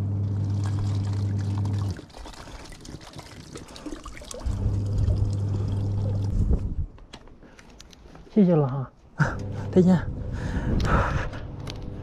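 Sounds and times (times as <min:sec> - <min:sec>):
steady low hum: 0:00.0 - 0:02.7, 0:04.4 - 0:07.0, 0:08.9 - 0:12.0
tap water filling plastic bottles: 0:00.4 - 0:06.7.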